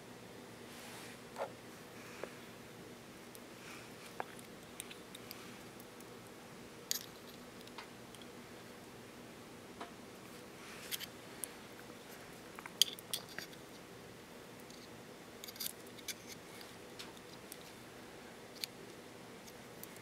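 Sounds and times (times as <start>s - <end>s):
faint steady hum: 0.0s - 20.0s
small metal parts clicking: 6.9s - 8.3s, 12.8s - 13.6s, 15.4s - 16.4s.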